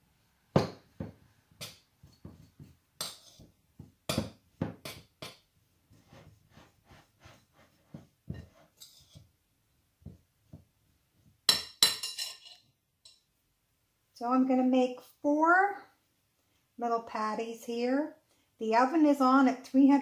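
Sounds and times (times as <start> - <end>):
utensil clinking in ceramic bowl: 11.5 - 13.2.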